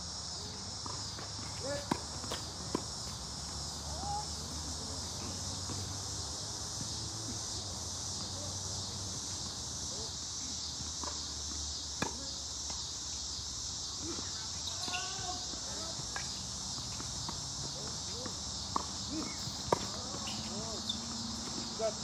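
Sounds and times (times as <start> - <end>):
crickets and night insects chirping: 0.0 - 22.0
tennis ball struck by racket: 18.3 - 20.6.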